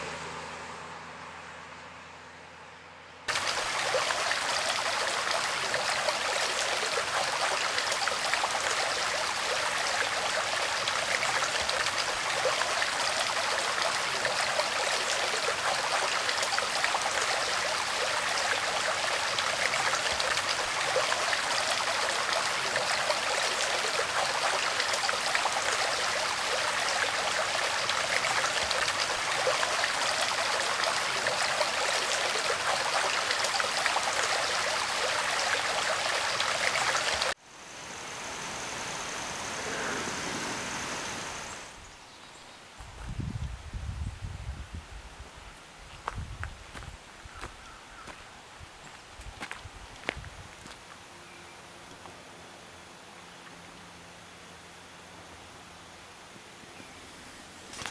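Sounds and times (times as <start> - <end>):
creek babbling: 3.3 - 42.8, 46.7 - 51.3.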